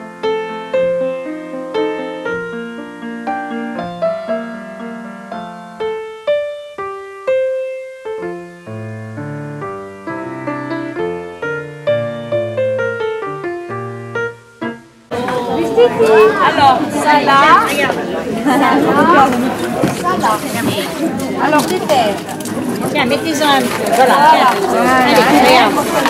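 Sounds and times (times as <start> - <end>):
low piano bass notes: 0.0 - 20.0
piano melody: 0.0 - 26.0.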